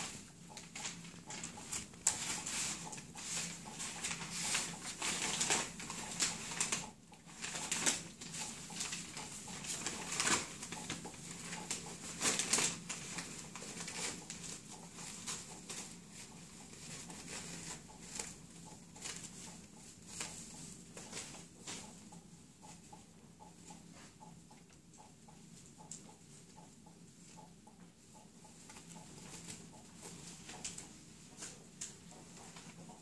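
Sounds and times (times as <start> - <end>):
paper rustling and crinkling: 0.0 - 21.9.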